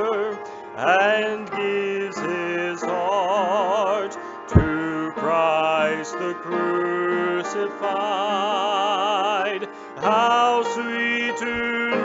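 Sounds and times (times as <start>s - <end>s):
hymn singing with vibrato: 0.0s - 12.0s
sharp thump: 4.6s - 4.8s.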